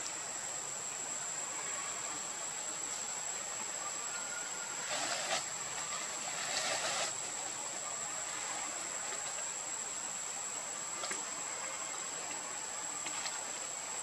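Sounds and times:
constant hiss: 0.0 - 14.0
insect drone: 0.0 - 14.0.

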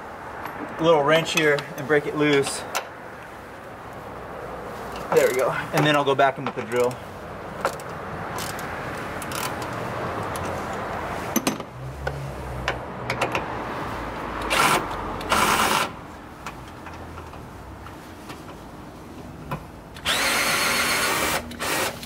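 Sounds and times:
cordless drill running: 20.0 - 22.0.

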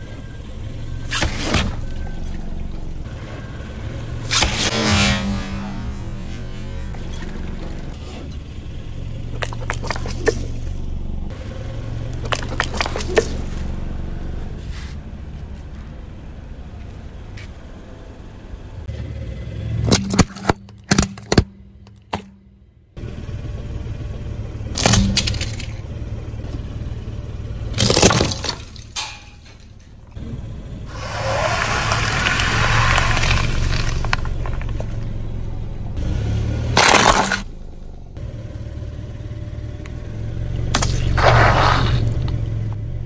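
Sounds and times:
car engine running: 0.0 - 43.0
objects crunching under tyre: 9.3 - 10.9, 12.1 - 15.7, 24.7 - 26.6, 27.7 - 30.2, 30.9 - 37.5, 40.7 - 42.4.

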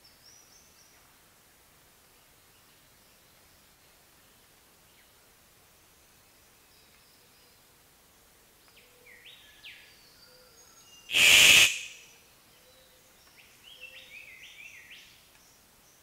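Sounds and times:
loud harsh bird call: 11.1 - 12.1.

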